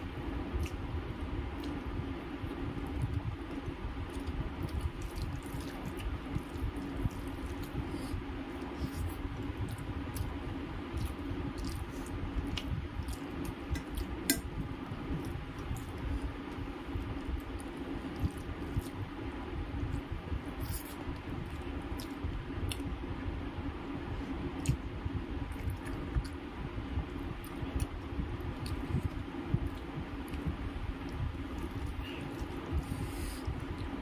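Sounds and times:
steady low hum: 0:00.0 - 0:34.0
fingers squishing soft food: 0:00.5 - 0:23.0
wet chewing: 0:02.8 - 0:14.5.

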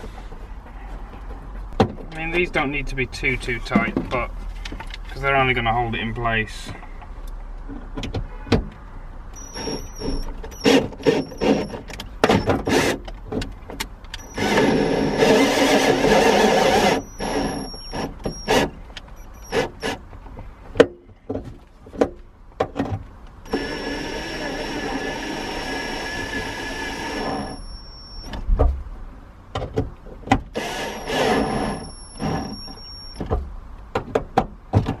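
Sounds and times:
cordless drill whining: 0:09.4 - 0:13.0, 0:14.2 - 0:20.0, 0:23.5 - 0:28.3, 0:30.6 - 0:33.2.

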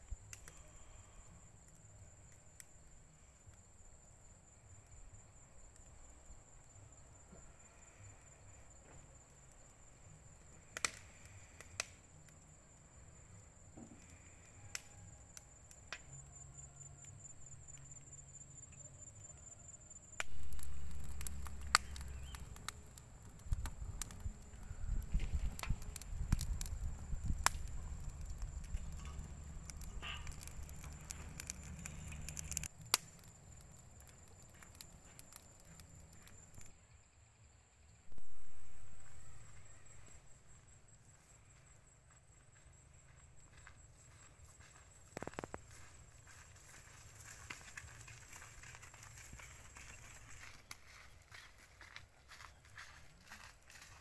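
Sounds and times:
wood fire crackling: 0:00.0 - 0:36.7, 0:38.1 - 0:40.2, 0:42.4 - 0:54.0
low rumble: 0:38.1 - 0:39.9.

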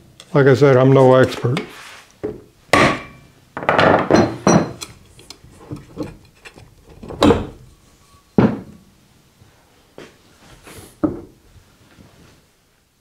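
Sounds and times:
mallet knocking on motor housing: 0:02.3 - 0:04.8.

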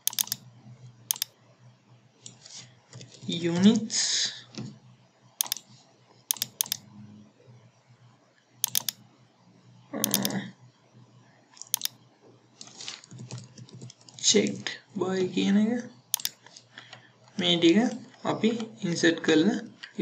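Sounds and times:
computer mouse clicking: 0:00.0 - 0:00.5, 0:01.1 - 0:01.3, 0:05.4 - 0:06.8, 0:08.6 - 0:09.0, 0:10.0 - 0:10.4, 0:11.6 - 0:12.0, 0:16.1 - 0:17.0.

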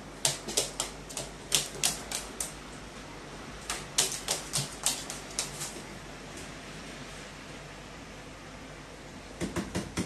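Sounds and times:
bird feet tapping on sheet metal: 0:00.2 - 0:02.6, 0:03.6 - 0:05.8.

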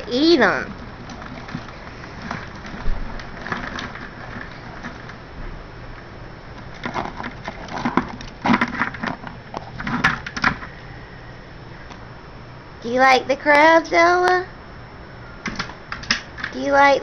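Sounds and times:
crabs scrabbling in plastic bucket: 0:00.6 - 0:05.4, 0:06.5 - 0:10.8.

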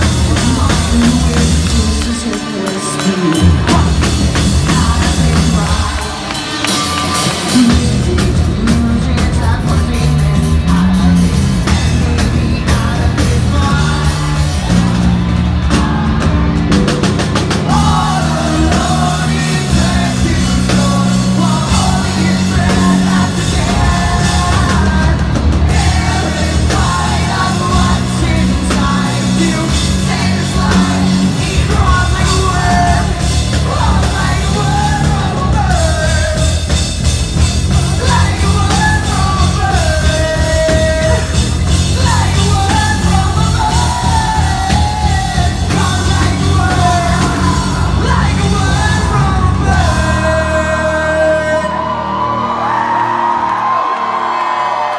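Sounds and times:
live rock band playing: 0:00.0 - 0:54.9.

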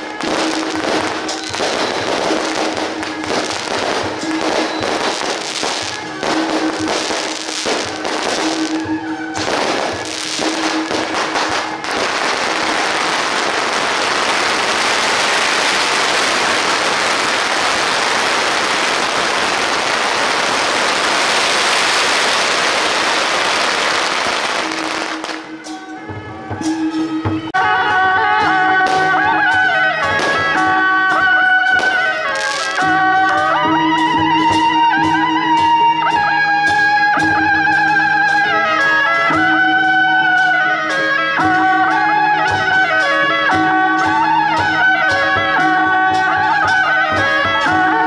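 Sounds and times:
firecrackers crackling: 0:00.0 - 0:25.8, 0:28.6 - 0:35.0.

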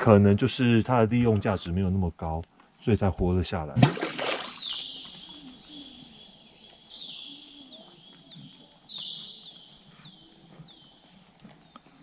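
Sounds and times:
high whistled bird calls: 0:04.0 - 0:11.1
faint lower bird calls: 0:04.1 - 0:12.0.

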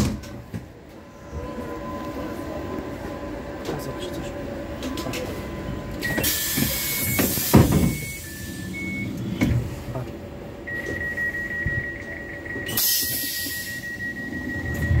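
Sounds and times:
air hiss of sliding door: 0:06.1 - 0:08.8, 0:12.8 - 0:13.8.

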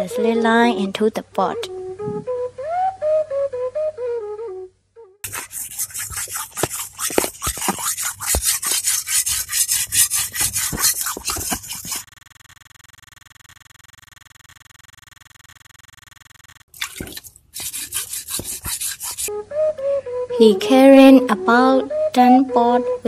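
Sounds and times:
blade on sharpening stone: 0:05.3 - 0:12.0, 0:17.6 - 0:19.3.

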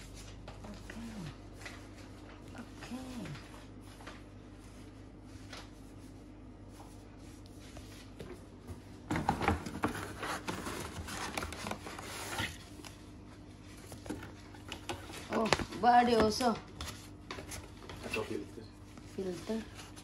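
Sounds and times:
plastic and cardboard handling: 0:09.1 - 0:13.0.

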